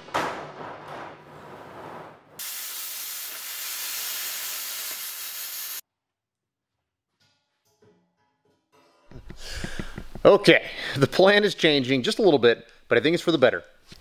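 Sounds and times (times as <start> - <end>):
plasma cutter hissing: 2.4 - 5.8.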